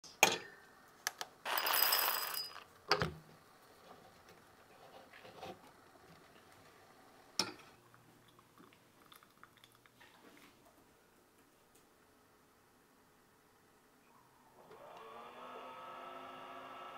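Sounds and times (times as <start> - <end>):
coffee beans rattling into cup: 1.4 - 2.7
glass cup clinking down: 1.5 - 2.7.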